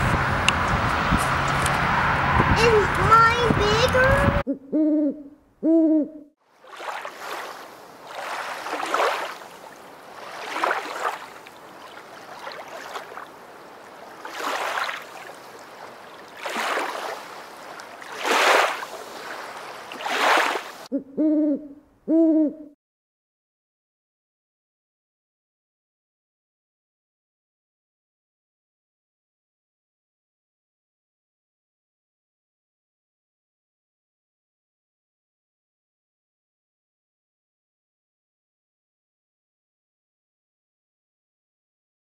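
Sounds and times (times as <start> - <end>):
low hooting calls: 4.4 - 6.3, 20.9 - 22.8.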